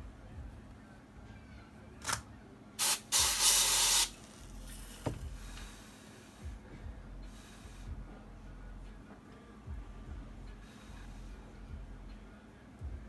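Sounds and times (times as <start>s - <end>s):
aerosol spray hissing: 2.8s - 6.4s.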